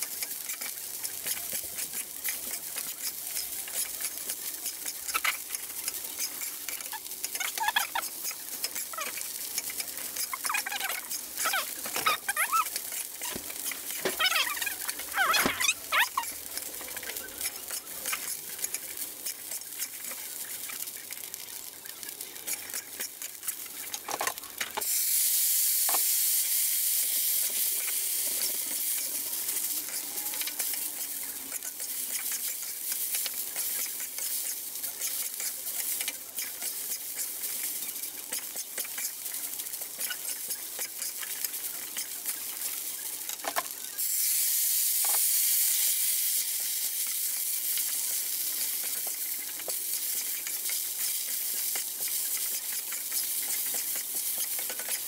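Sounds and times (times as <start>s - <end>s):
rice sizzling in a wok: 0.0s - 55.0s
metal spatula scraping a pan: 0.1s - 24.2s, 27.6s - 43.5s.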